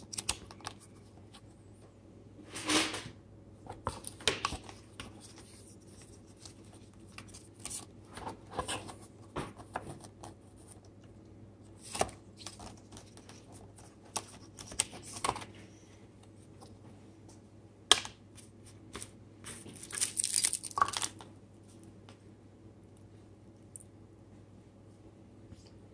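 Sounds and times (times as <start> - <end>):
paper packaging rustling: 19.5 - 21.2.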